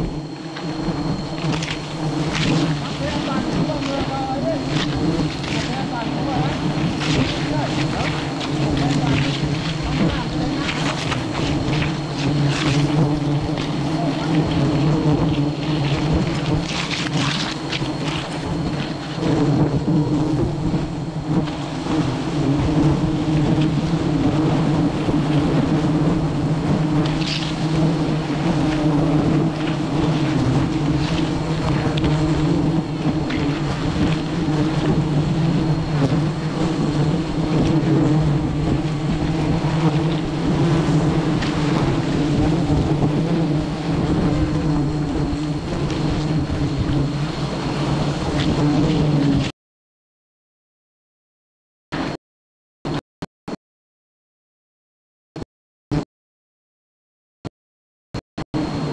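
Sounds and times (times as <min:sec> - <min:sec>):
honeybees buzzing: 0:00.0 - 0:49.5, 0:58.6 - 0:58.9.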